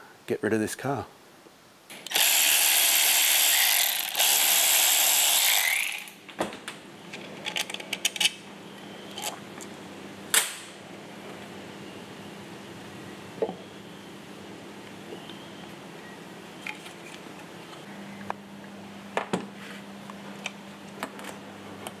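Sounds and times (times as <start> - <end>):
electric ratchet running: 1.9 - 6.2.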